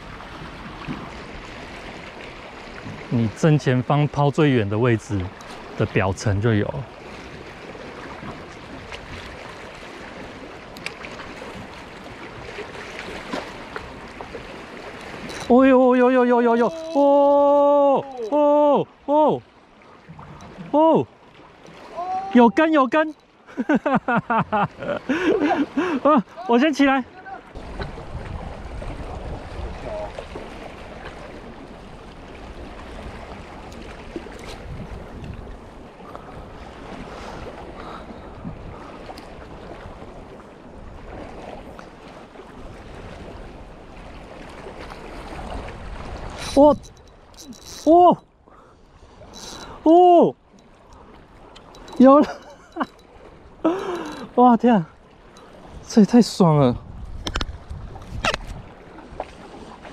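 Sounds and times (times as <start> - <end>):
sea water lapping: 0.0 - 59.9
faint light ticks: 10.7 - 11.0, 39.1 - 39.3, 50.5 - 53.1
wind buffeting microphone: 27.6 - 30.3, 32.0 - 41.8, 56.6 - 59.4.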